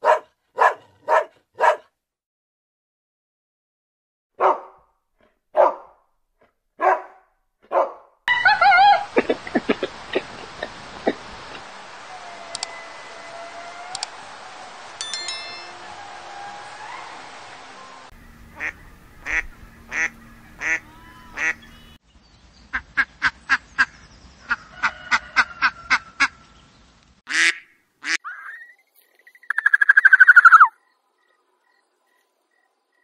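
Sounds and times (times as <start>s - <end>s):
duck quacking: 18.5s - 21.9s, 27.3s - 28.2s
evenly spaced duck calls: 18.5s - 22.0s, 27.3s - 28.2s
harsh falling duck call: 18.6s - 21.8s.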